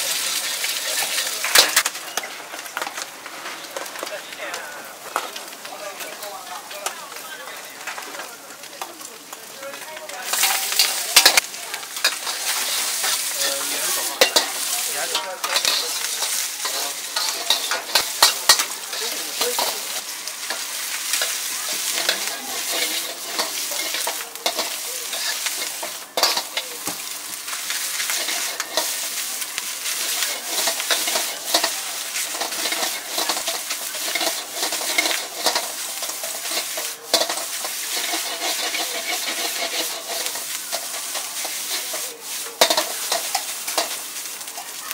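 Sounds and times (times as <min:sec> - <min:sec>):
food sizzling in a wok: 0:00.0 - 0:44.9
metal ladle scraping a wok: 0:12.0 - 0:26.8, 0:27.5 - 0:44.1.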